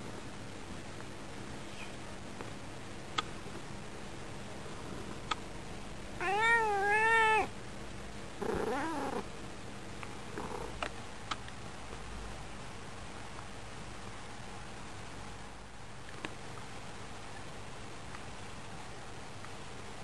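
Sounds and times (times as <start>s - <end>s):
cat meowing: 6.2s - 7.5s, 8.5s - 9.2s.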